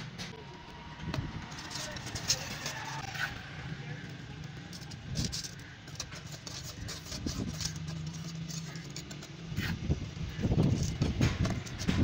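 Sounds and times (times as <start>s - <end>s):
trowel scraping metal cans: 1.5s - 3.4s, 4.6s - 12.0s.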